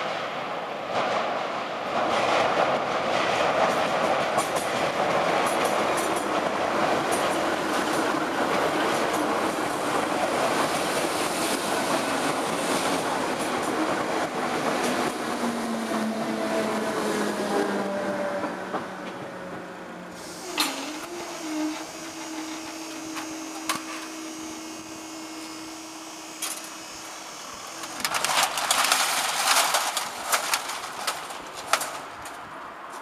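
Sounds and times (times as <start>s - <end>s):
electric train running: 20.2s - 32.1s.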